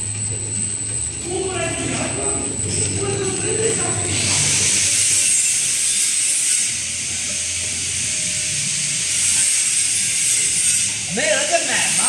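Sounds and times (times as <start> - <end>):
faint low hum: 0.0 - 5.1
loud steady hiss: 1.2 - 12.0.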